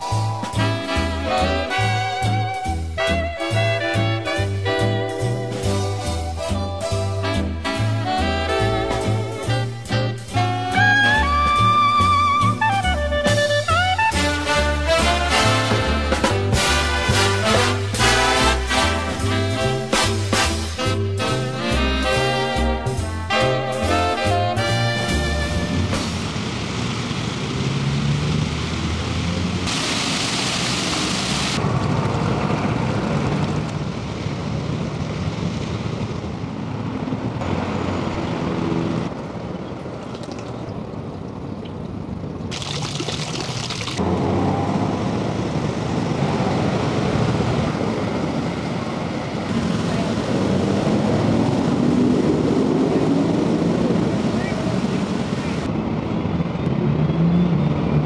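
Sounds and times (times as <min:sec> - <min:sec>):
fountain water splashing: 0:28.8 - 0:31.7, 0:42.4 - 0:44.0, 0:53.5 - 0:55.7.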